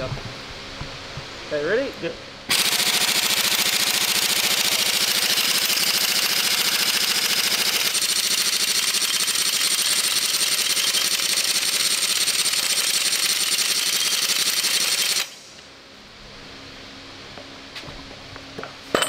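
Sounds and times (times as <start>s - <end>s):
pneumatic impact wrench rattling: 2.5s - 15.6s.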